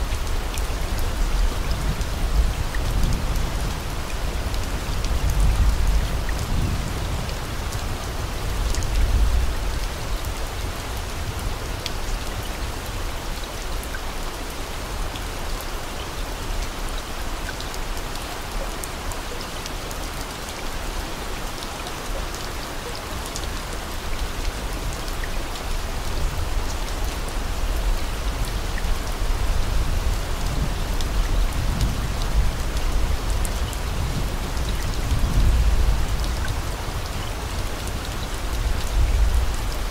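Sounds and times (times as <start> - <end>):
steady rain hiss: 0.0 - 39.9.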